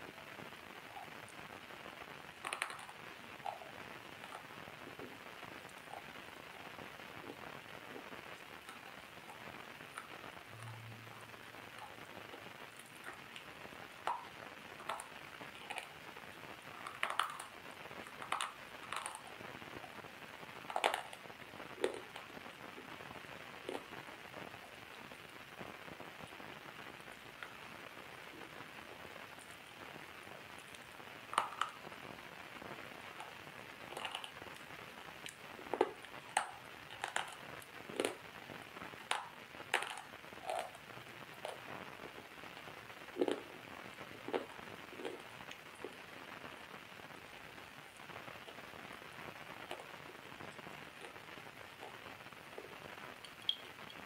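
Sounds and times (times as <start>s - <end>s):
steady faint hiss: 0.0s - 54.0s
water drops plipping: 53.2s - 53.7s.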